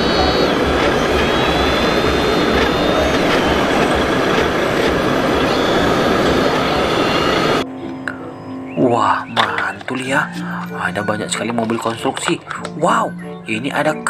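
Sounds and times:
model excavator mechanical noise: 0.0 - 7.6
thin whine: 0.0 - 8.6.

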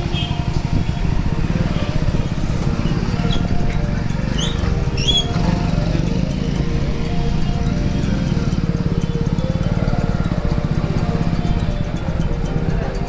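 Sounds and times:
background music: 0.0 - 13.0
motorcycle engines in traffic: 0.0 - 13.0.

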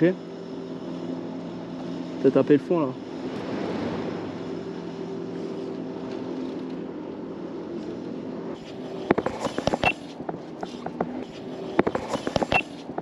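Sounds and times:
motor droning: 0.0 - 13.0
sharp clicks and knocks: 9.1 - 13.0.

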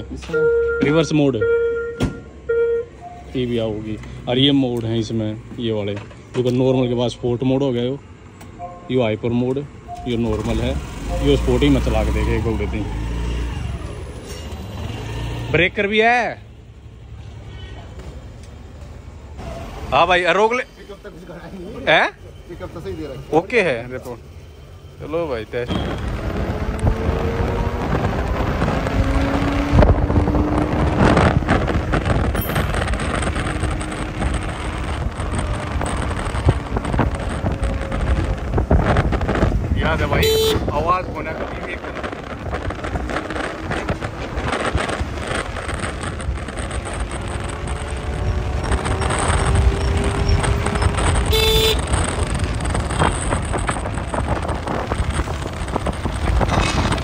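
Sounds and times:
road noise: 0.0 - 57.0
wind rushing over microphone: 25.3 - 57.0
short horn toot: 40.2 - 40.7, 51.3 - 51.9.

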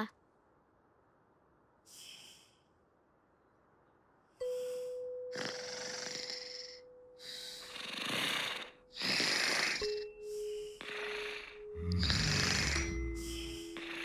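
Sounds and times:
cartoon snoring: 5.3 - 10.0, 10.8 - 14.0
held steady note: 8.8 - 14.0.

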